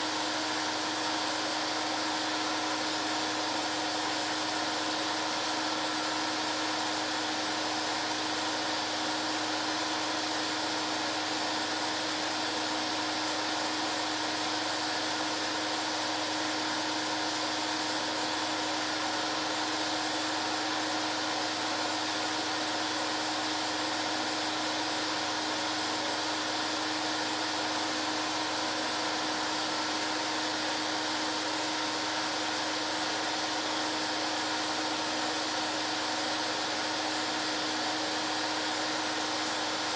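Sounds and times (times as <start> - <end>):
film projector motor whir: 0.0 - 39.9.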